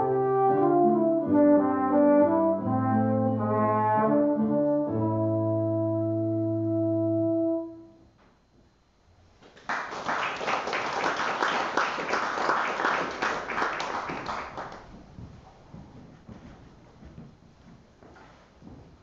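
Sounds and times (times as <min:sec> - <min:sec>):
instrumental music held chord: 0:00.0 - 0:08.1
applause: 0:09.4 - 0:15.0.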